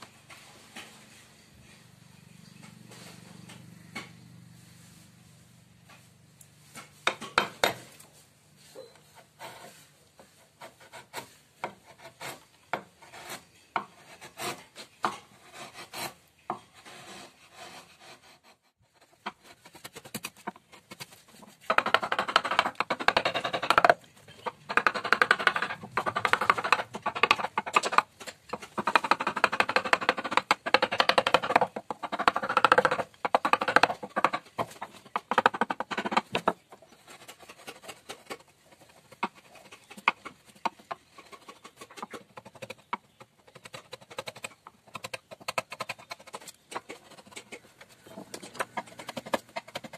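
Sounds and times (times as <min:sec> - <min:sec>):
chisel scraping wood: 0:09.0 - 0:49.9
hammer tapping chisel: 0:21.6 - 0:38.4.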